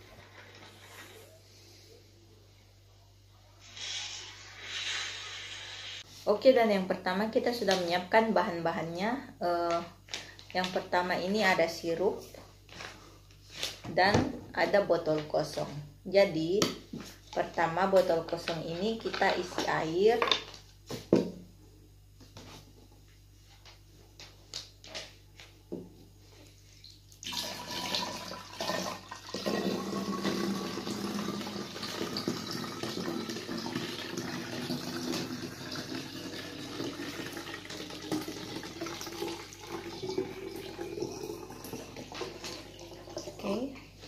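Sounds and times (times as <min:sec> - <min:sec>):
water pouring into plastic bottle: 0:26.8 - 0:43.4.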